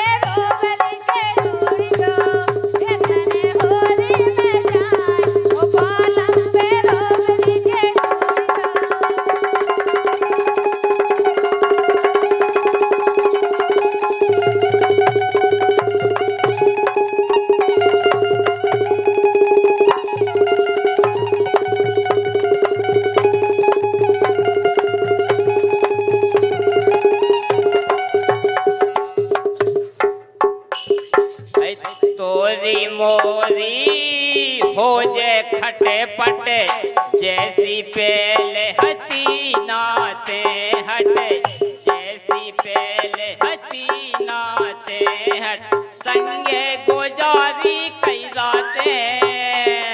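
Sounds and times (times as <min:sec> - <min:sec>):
woman singing: 0:00.0 - 0:09.7, 0:32.2 - 0:49.9
hand drum beats: 0:00.0 - 0:49.9
string melody: 0:00.0 - 0:49.9.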